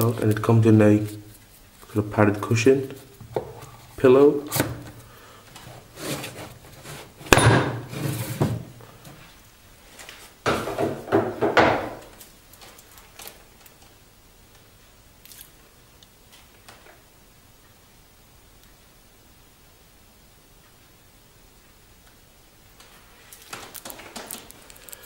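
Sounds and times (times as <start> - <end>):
rubbing and scraping of box: 5.6 - 8.7.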